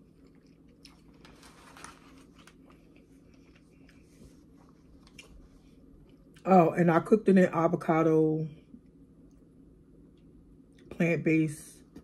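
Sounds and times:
quiet chewing: 0.0 - 6.4
low steady hum: 0.0 - 12.0.

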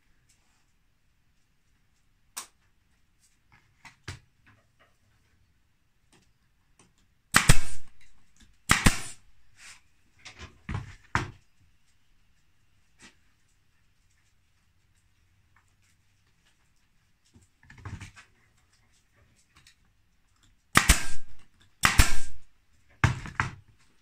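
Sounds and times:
staple gun shots: 7.3 - 8.1, 8.7 - 9.2, 20.7 - 22.5.

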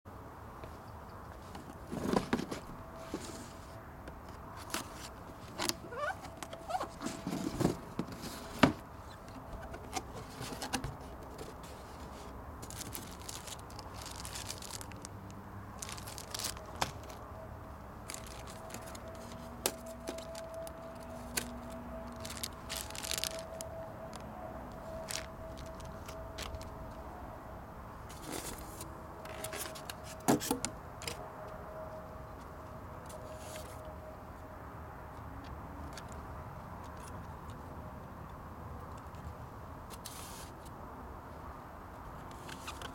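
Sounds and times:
cardboard box being handled: 18.1 - 23.6.

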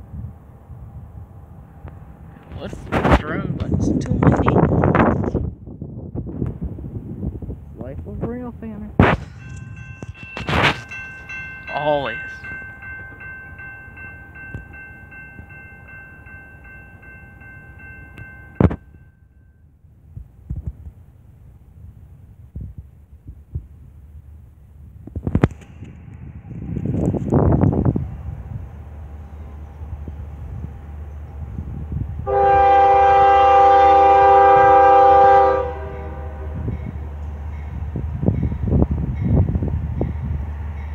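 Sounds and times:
locomotive air horn blast: 32.2 - 36.7.

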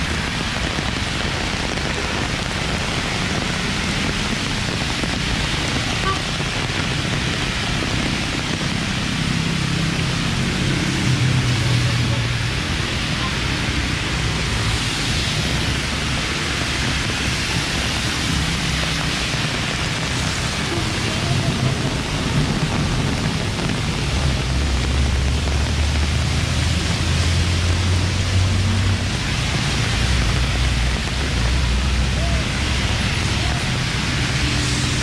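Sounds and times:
heavy rain falling: 0.0 - 35.0
road traffic rumble: 0.0 - 35.0.

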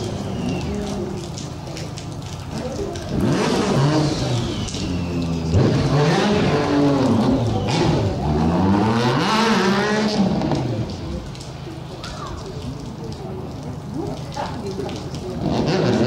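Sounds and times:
motorcycle engine revving: 3.0 - 11.0, 15.4 - 16.0.

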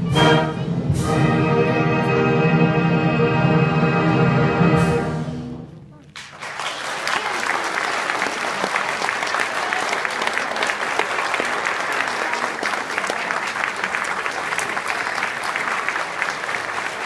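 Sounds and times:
audience applauding: 6.1 - 17.0.

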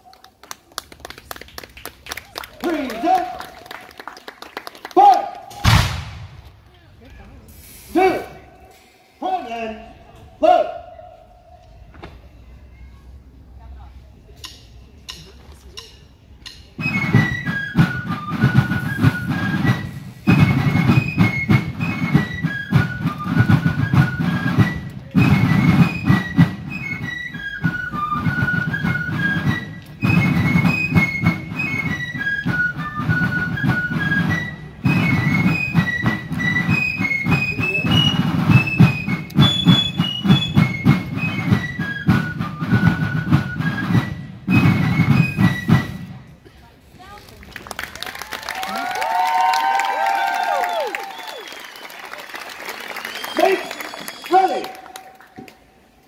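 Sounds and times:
snare drum rolls: 5.5 - 6.6, 16.8 - 46.1.

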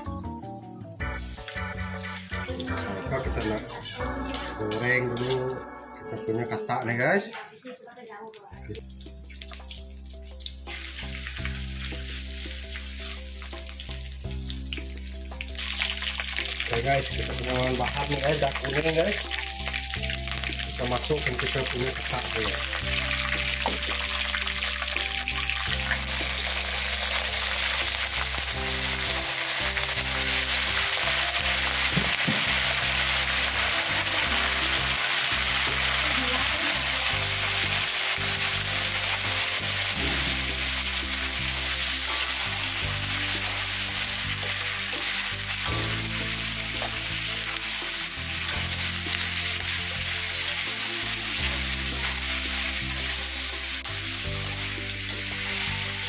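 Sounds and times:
food sizzling in hot oil: 0.0 - 56.0
metal spatula scraping wok: 1.3 - 6.1.

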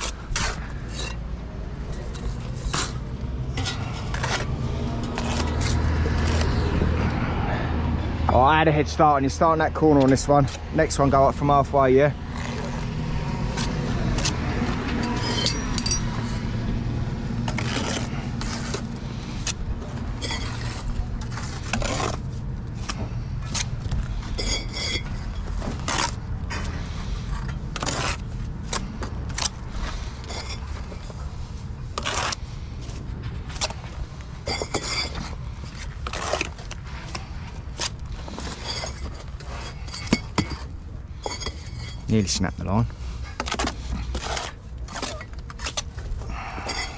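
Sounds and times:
trowel scraping mortar: 0.0 - 1.2, 1.9 - 6.8, 12.3 - 12.9, 13.5 - 16.4, 17.5 - 19.6, 20.2 - 26.2, 27.0 - 31.2, 31.9 - 32.6, 34.5 - 42.4, 43.2 - 46.9
bricks clinking and tapping: 38.2 - 42.1.

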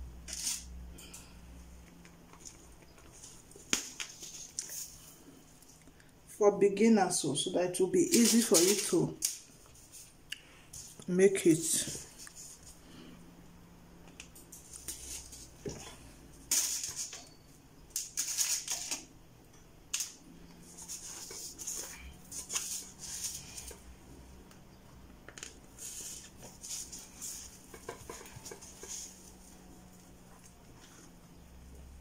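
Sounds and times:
faint hum: 0.0 - 8.2, 9.1 - 18.2
rustling and scraping of hair: 2.2 - 5.8, 7.7 - 12.9, 14.5 - 17.4, 20.0 - 24.3, 25.5 - 32.0.

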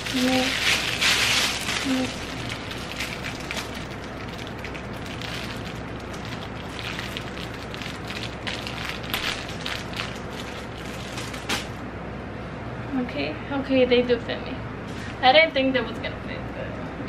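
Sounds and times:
plastic wrapping crinkling: 0.0 - 11.8
steady low hum: 0.0 - 17.0.

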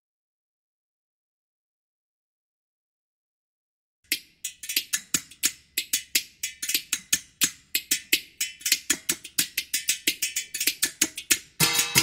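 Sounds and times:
percussion on steel kitchen utensils: 4.1 - 12.0.

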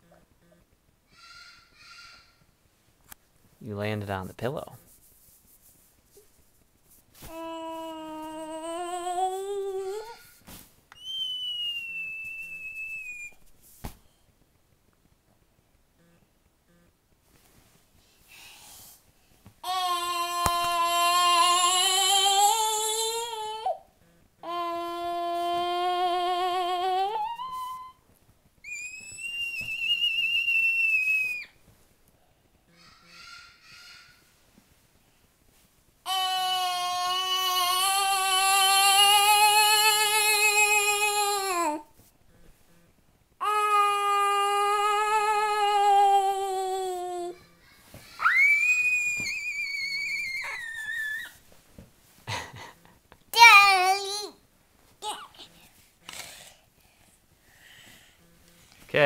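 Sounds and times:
person humming: 7.2 - 10.1, 19.6 - 23.8, 24.4 - 28.0, 36.1 - 41.9, 43.4 - 47.4
child singing wavering note: 7.4 - 10.2, 19.7 - 23.8, 24.4 - 28.0, 36.1 - 41.9, 43.4 - 47.6
whistled note: 11.0 - 13.4, 28.7 - 31.5
child high-pitched squeal: 24.4 - 28.0, 28.6 - 31.6, 36.1 - 41.8, 43.4 - 51.4.

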